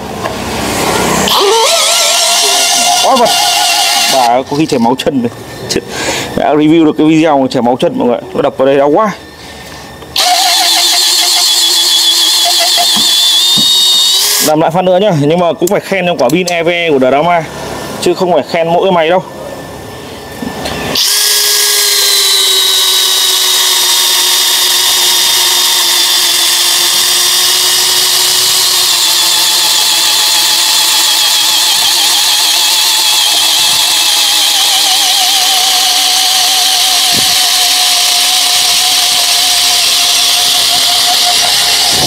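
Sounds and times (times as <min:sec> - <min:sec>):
drill boring into log: 0:01.2 - 0:04.8, 0:10.1 - 0:14.6, 0:20.9 - 0:42.0.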